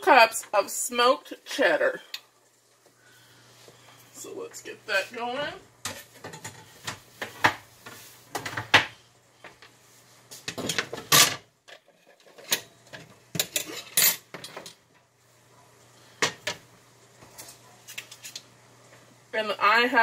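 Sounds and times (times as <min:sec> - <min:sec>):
utensils and dishes clattering: 0:05.8 - 0:07.0, 0:10.5 - 0:14.8.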